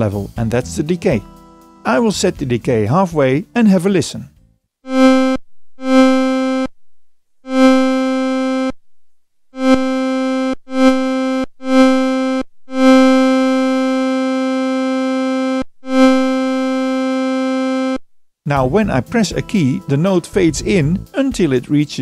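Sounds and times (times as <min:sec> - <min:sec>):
synthesizer notes: 0:04.8 - 0:06.7, 0:07.4 - 0:08.7, 0:09.6 - 0:21.2.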